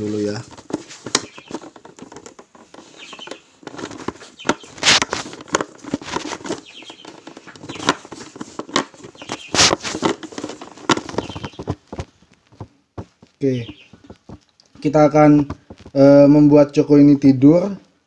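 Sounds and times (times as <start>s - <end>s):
bird wings fluttering: 0.3s - 14.5s.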